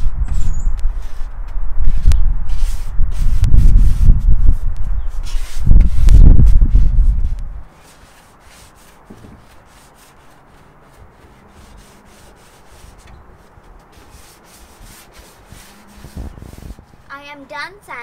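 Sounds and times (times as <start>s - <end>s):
sanding sponge rubbing wood: 0.0s - 17.1s.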